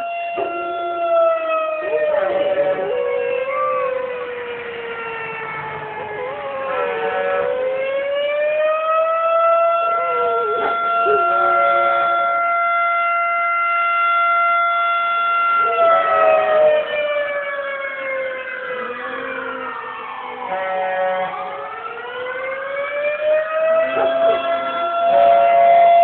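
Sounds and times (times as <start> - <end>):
warning siren wailing: 0.0 - 26.0
dog howling: 0.2 - 4.4, 9.7 - 12.4, 15.6 - 17.0, 18.3 - 20.7.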